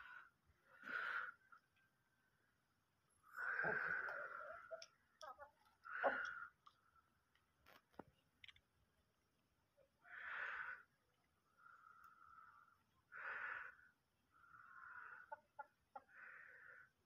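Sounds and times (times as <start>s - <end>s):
chickens making wheezy calls: 3.4s - 6.6s, 14.5s - 16.8s.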